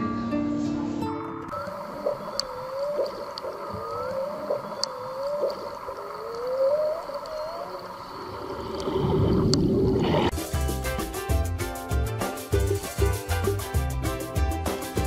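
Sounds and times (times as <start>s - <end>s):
faint high clicks: 1.5s - 7.9s
whale low moaning calls: 1.5s - 8.6s.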